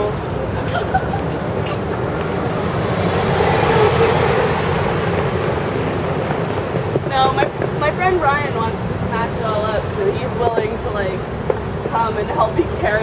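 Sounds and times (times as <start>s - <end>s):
road traffic noise: 0.0s - 13.0s
pickup truck driving past: 1.4s - 7.9s.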